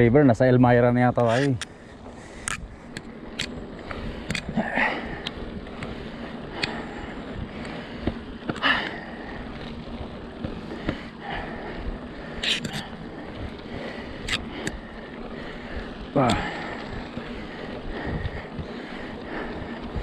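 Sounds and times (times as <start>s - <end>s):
bicycle tyres rolling: 0.0s - 20.0s
bike clicks and knocks: 1.2s - 20.0s
heavy breathing: 1.3s - 20.0s.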